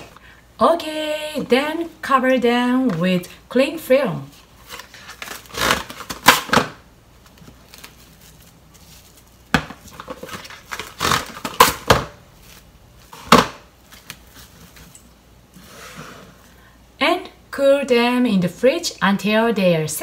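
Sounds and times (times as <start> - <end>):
cling film tearing and crinkling: 4.6 - 12.7.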